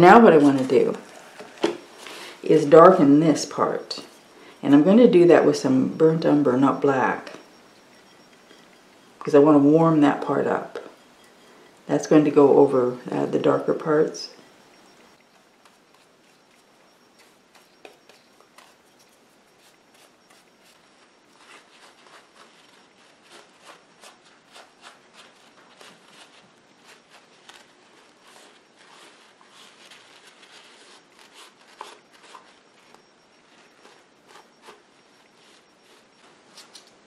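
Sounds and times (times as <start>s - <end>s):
paintbrush rubbing strokes: 0.0s - 36.6s
paper towel rubbing surface: 15.4s - 36.4s.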